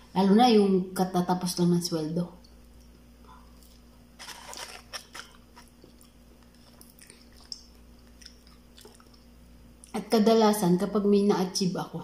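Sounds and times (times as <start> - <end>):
person chewing food: 2.8 - 9.9
paper wrapper crackling: 4.2 - 5.8.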